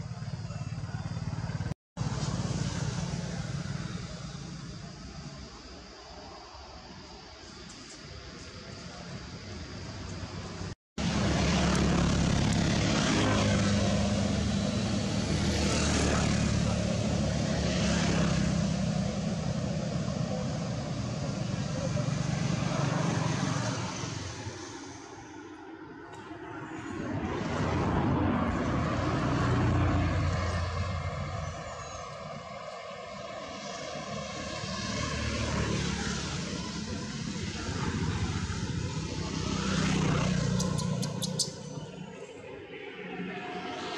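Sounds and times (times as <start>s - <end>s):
loud engine drone: 0.0s - 5.5s, 9.8s - 25.8s, 26.4s - 43.9s
motor engine drone: 9.7s - 25.4s.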